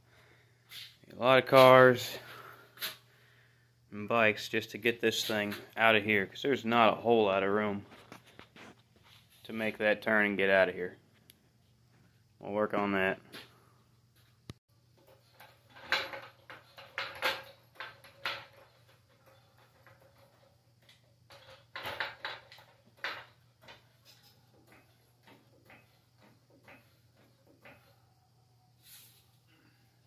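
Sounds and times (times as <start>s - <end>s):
floor jack rolling on concrete: 14.9s - 28.2s
metal clanks and rattles: 14.9s - 28.2s.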